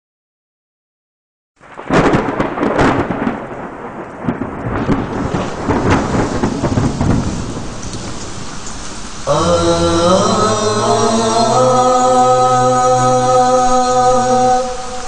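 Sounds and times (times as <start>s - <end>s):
thunder claps: 1.6s - 11.0s
heavy rain: 1.6s - 15.0s.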